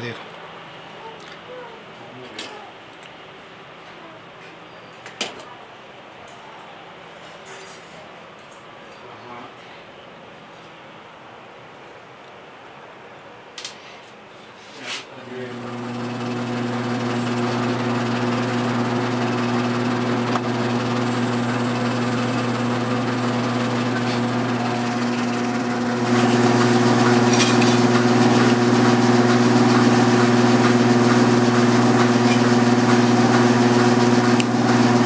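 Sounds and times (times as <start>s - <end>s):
lathe motor humming: 15.4s - 35.0s.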